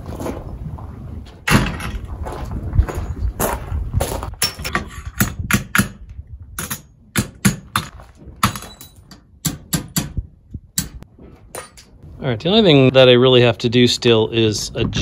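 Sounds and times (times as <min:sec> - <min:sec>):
footsteps on gravel: 0:00.0 - 0:04.4, 0:07.8 - 0:08.8.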